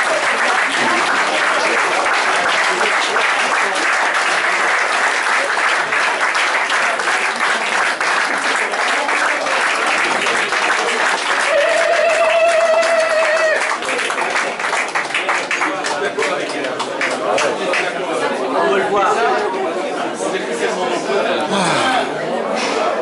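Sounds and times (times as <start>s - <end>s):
crowd applauding: 0.0s - 18.3s.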